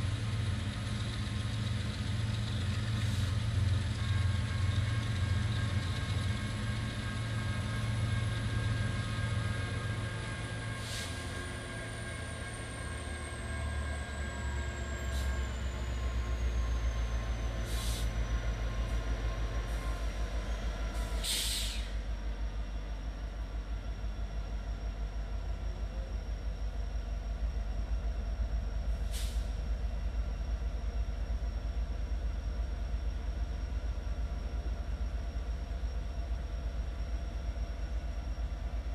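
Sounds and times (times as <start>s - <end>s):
diesel locomotive engines droning: 0.0s - 38.9s.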